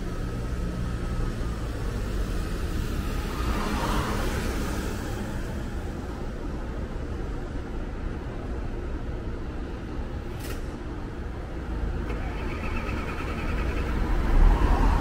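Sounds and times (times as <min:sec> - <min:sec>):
car passing: 0:12.1 - 0:15.0.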